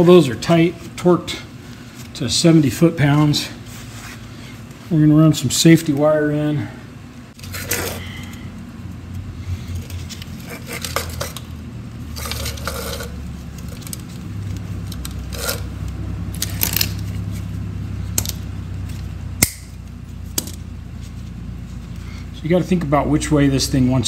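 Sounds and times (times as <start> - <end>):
steady low hum: 0.0 - 24.0
wire scraping and clinking on bolts: 9.8 - 17.4.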